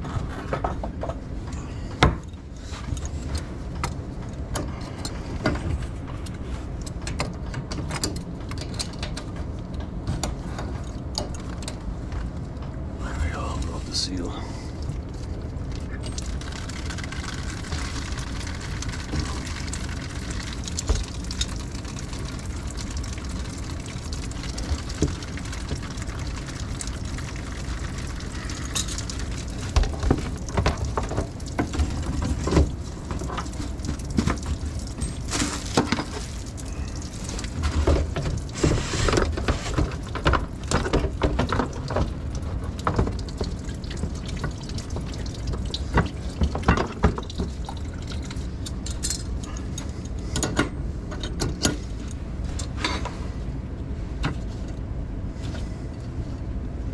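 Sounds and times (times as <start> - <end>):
water rushing down a drain: 14.7 - 49.6
knocks and splashes: 15.8 - 48.4.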